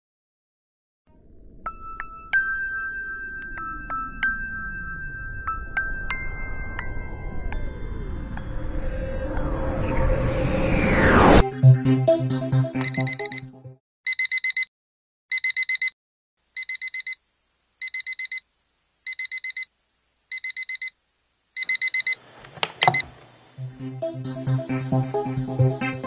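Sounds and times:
background music: 11.4 - 13.8, 23.6 - 26.0
alarm clock beeping: 12.8 - 13.4, 14.1 - 14.7, 15.3 - 16.0, 16.6 - 17.2, 17.8 - 18.4, 19.1 - 19.7, 20.3 - 21.0, 21.6 - 22.2, 22.8 - 23.1.

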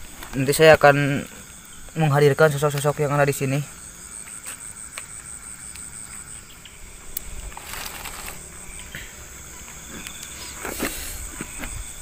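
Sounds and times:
crickets chirping: 0.0 - 12.0
brief rustle: 7.5 - 8.4.

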